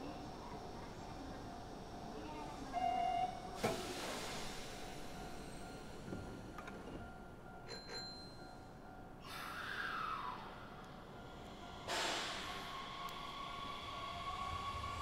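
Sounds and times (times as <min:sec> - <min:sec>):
rush of train noise: 0:00.0 - 0:07.1, 0:09.2 - 0:15.0
steady train whine: 0:08.6 - 0:15.0.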